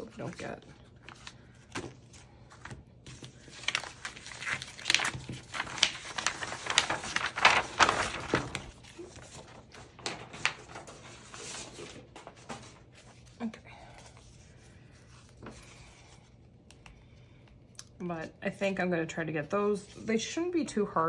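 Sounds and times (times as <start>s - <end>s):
plastic packaging crinkling: 3.1s - 12.7s.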